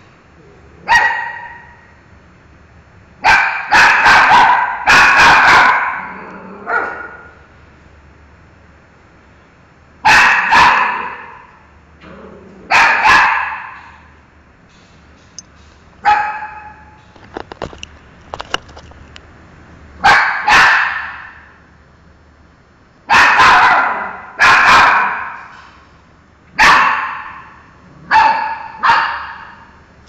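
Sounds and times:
dog barking in echoing room: 0.8s - 2.0s, 3.2s - 7.5s, 10.0s - 14.2s, 16.0s - 17.0s, 20.0s - 21.6s, 23.0s - 25.6s, 26.5s - 29.9s.

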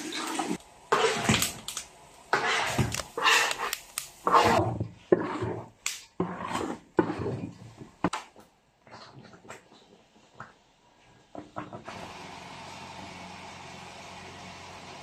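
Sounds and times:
metal spatula scraping wok: 0.0s - 1.4s, 2.3s - 7.7s.

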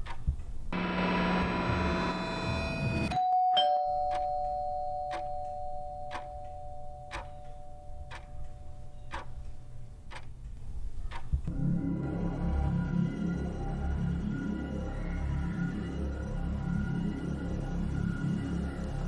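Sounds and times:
clock ticking: 0.0s - 0.7s, 4.0s - 11.8s
two-tone doorbell chime: 3.0s - 9.1s.

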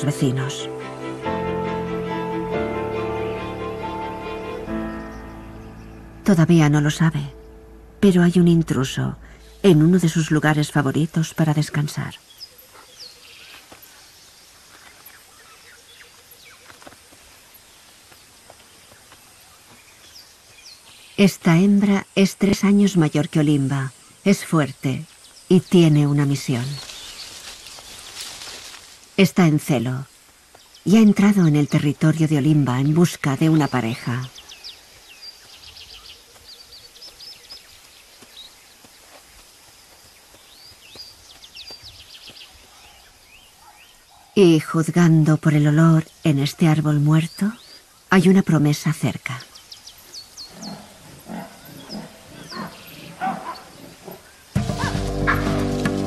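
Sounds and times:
faint steady hiss: 3.4s - 56.0s
birds chirping and whistling: 4.6s - 6.2s.

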